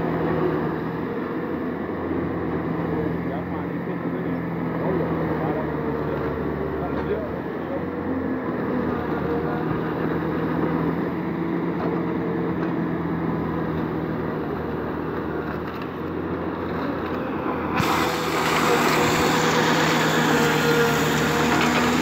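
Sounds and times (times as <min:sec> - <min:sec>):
diesel engine running: 0:00.0 - 0:22.0
loud harsh hiss: 0:17.8 - 0:22.0.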